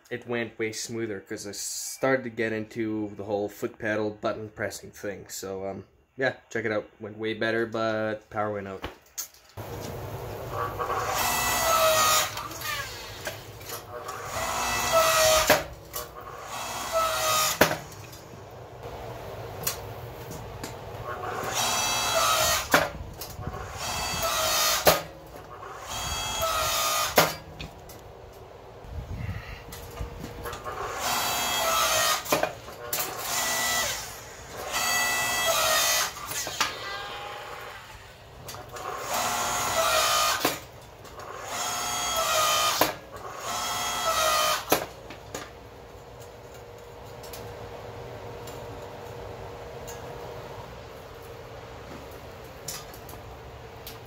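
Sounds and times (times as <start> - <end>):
hydraulic pump motor whining: 10.4 - 18.2, 21.0 - 27.4, 29.8 - 40.6, 41.2 - 44.8
steady hum: 13.1 - 31.6.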